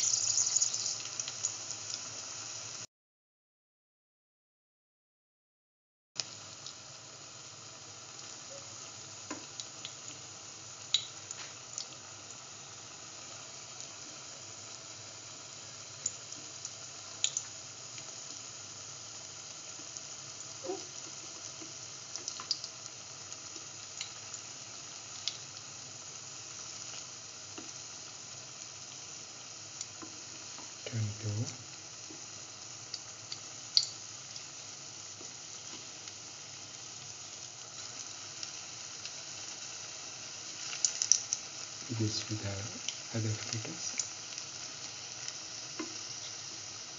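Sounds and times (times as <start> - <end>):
oil popping and crackling: 0.0 - 2.0, 10.9 - 12.0, 16.0 - 18.1, 20.6 - 22.9, 32.1 - 39.8, 40.5 - 46.9
fritters sizzling in hot oil: 0.0 - 2.9, 6.2 - 46.9.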